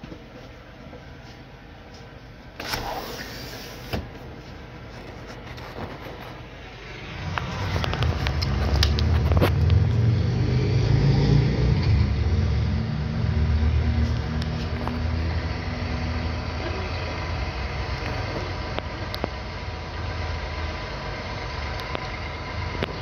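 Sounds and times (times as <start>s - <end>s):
diesel truck engine humming: 11.0s - 23.0s.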